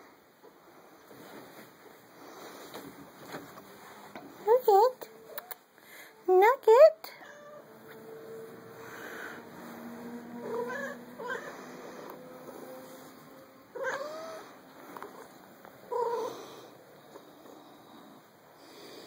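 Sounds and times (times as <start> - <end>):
cat meowing: 7.2 - 7.7, 10.4 - 11.6, 13.8 - 14.5.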